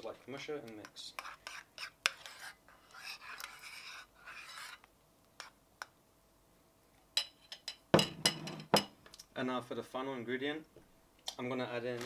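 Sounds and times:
metal spoon scraping in bowl: 1.2s - 5.6s
spoon tapping bowl: 7.2s - 8.9s.

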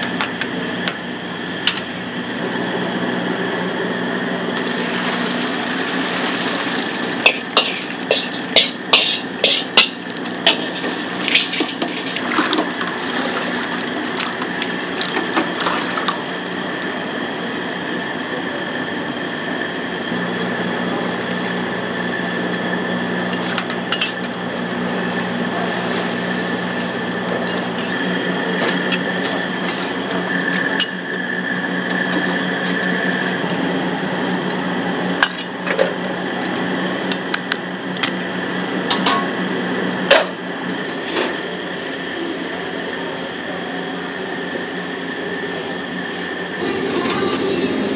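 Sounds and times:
high whine: 0.0s - 47.9s
machine hum: 0.0s - 47.9s
utensil stirring cracklings in lard: 4.6s - 16.1s.

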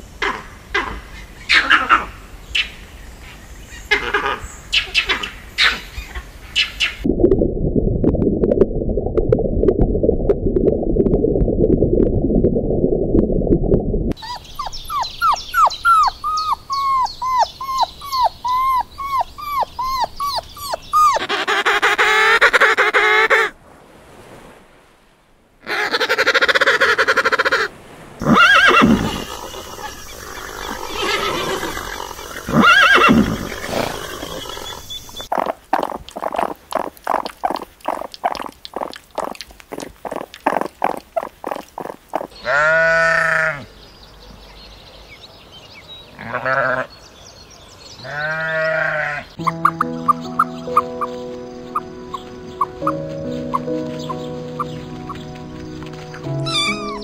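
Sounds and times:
puppies whimpering: 14.2s - 21.9s, 56.4s - 57.0s
sheep bleat: 42.4s - 43.7s, 46.2s - 46.9s, 48.0s - 49.3s.

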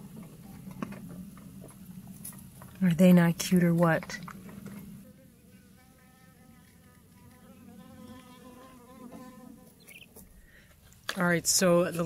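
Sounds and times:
flying insect buzzing: 5.0s - 10.3s.

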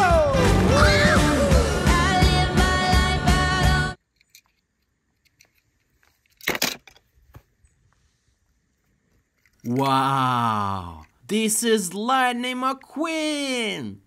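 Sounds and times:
background music with steady beat: 0.0s - 4.0s.

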